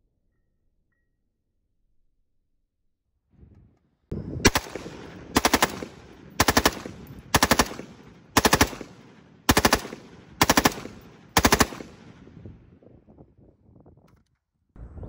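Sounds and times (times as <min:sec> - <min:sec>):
rifle firing in bursts: 0:04.4 - 0:12.4.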